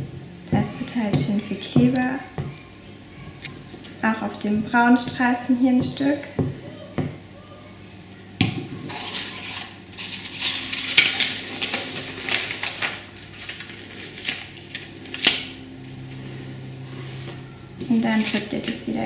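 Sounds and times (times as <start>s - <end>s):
craft paper rustling and crinkling: 8.9s - 15.5s.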